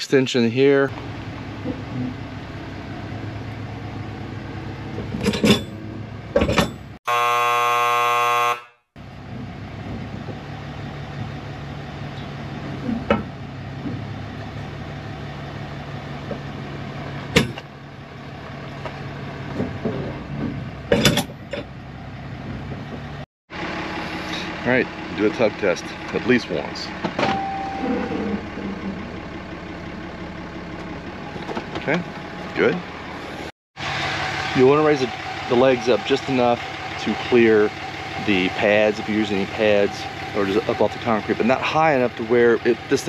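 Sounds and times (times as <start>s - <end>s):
truck engine idling: 0.0s - 43.0s
harsh buzzing tone: 7.1s - 8.9s
sharp clunks and knocks: 12.8s - 14.1s, 17.3s - 17.7s, 18.8s - 21.8s.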